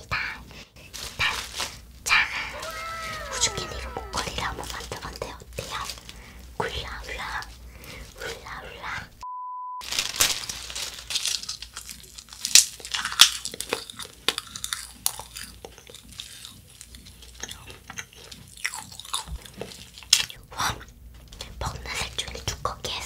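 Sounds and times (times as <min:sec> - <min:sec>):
crunching wafer candy: 0:00.9 - 0:08.6, 0:09.8 - 0:20.4
chewing: 0:11.1 - 0:20.4.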